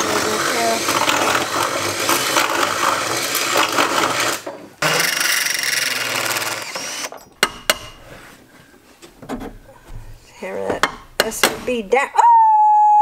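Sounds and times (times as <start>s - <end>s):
cordless drill reaming metal: 0.0s - 7.4s.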